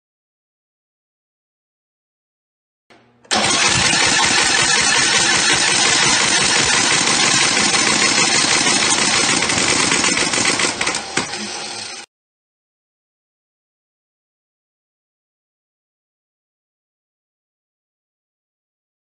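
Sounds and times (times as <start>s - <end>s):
single-cylinder engine running: 3.3s - 12.1s.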